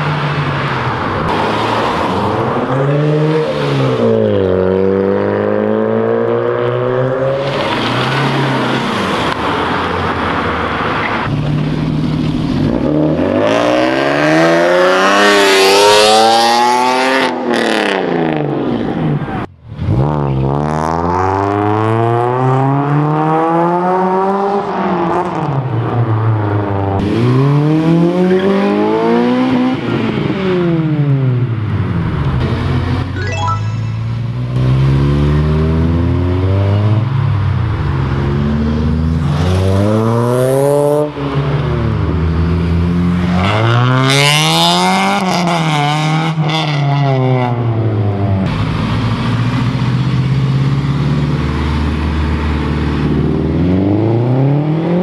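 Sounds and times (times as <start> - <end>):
car engines revving: 0.0 - 33.2, 33.9 - 55.0.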